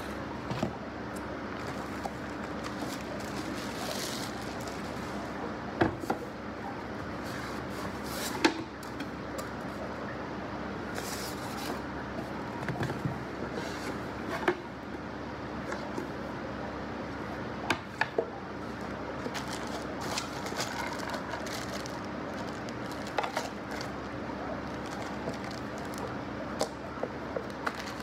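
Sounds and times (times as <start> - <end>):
plastic wrap rustling: 1.6 - 5.5, 18.7 - 26.7, 27.4 - 28.0.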